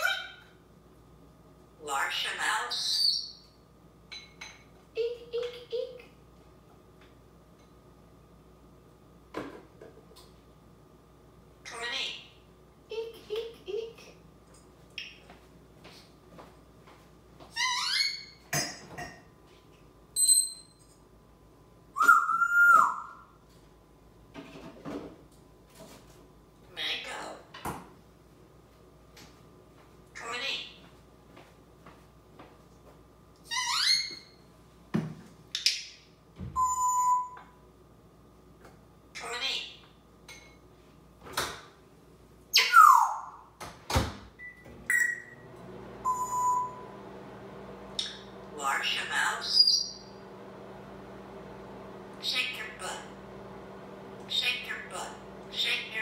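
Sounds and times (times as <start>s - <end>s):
dishes clinking: 4.1s - 4.8s
parrot whistling: 22.0s - 23.2s, 36.6s - 37.4s, 44.9s - 45.4s
appliance humming: 44.4s - 56.0s
short beeps: 46.1s - 46.8s.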